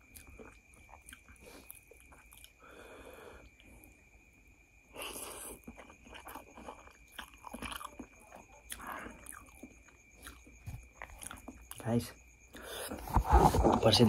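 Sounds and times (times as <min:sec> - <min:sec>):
chewing with smacks: 0:00.0 - 0:02.6, 0:05.0 - 0:12.0.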